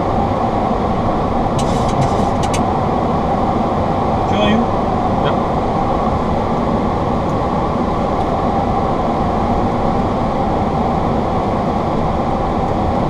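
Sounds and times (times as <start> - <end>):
jet engines humming: 0.0 - 13.0
airflow rush over cockpit: 1.5 - 3.0.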